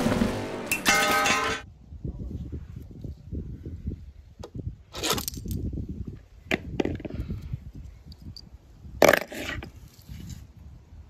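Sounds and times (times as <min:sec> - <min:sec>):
low rumble: 0:00.0 - 0:01.6.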